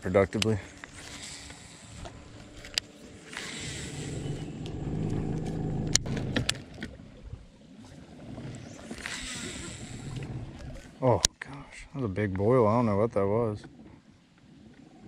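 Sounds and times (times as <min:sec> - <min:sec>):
electric trolling motor humming: 0:00.8 - 0:07.0.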